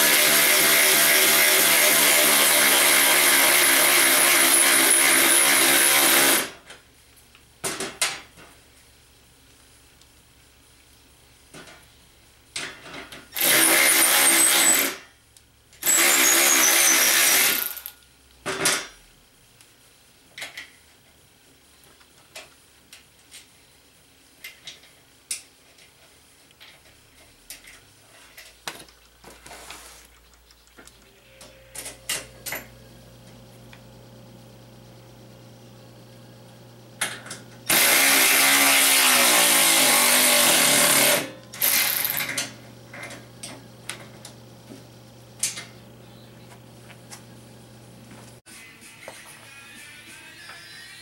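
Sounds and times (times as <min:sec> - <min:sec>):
electric ratchet whining: 0:00.0 - 0:06.5, 0:13.4 - 0:15.0, 0:15.8 - 0:17.9, 0:37.7 - 0:42.5.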